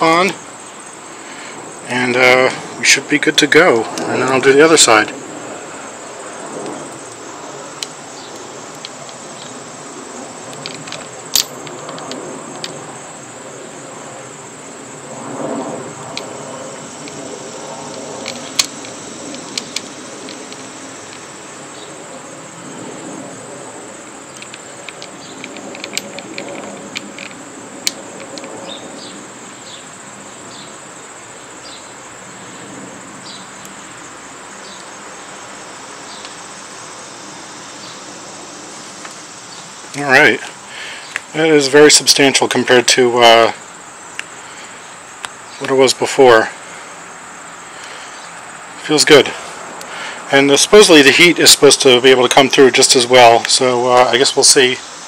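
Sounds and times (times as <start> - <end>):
crickets chirring: 0.0 - 55.0.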